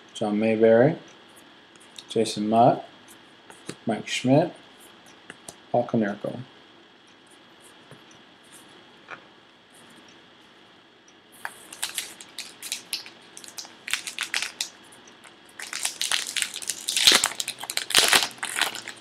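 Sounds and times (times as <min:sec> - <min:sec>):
wrapper crinkling and tearing: 0:11.4 - 0:14.8, 0:15.6 - 0:19.0.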